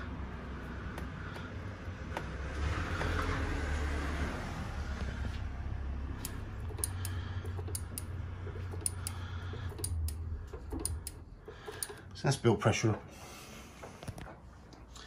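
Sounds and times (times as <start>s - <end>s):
sharp clicks from brake work: 6.2s - 12.1s.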